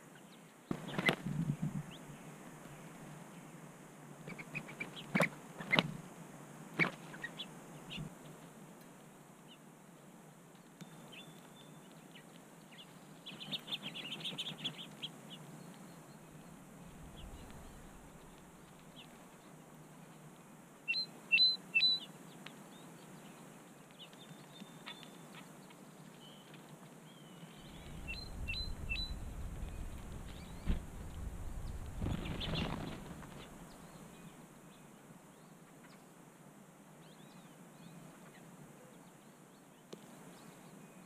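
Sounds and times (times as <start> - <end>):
songbirds chirping: 0.0 - 6.0, 6.8 - 41.0
low rumble: 16.4 - 18.9, 27.6 - 33.8.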